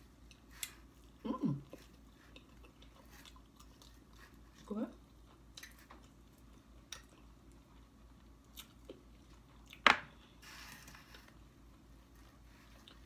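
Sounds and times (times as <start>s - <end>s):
person chewing: 0.0s - 10.4s, 11.6s - 13.0s.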